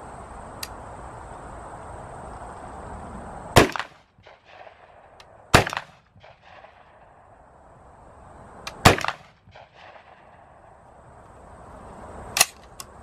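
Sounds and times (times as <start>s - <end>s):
echoing cracks: 3.6s - 7.2s, 8.7s - 10.7s
rifle shots: 3.6s - 7.2s, 8.7s - 10.6s.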